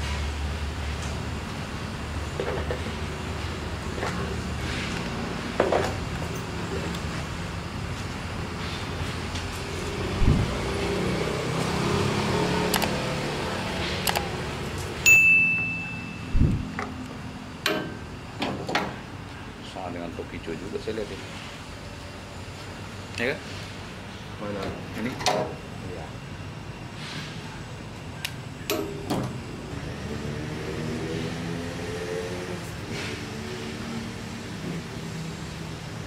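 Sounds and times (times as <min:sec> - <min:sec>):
low background rumble: 0:10.2 - 0:10.6, 0:16.0 - 0:16.8
bright metallic ding: 0:15.1 - 0:16.5.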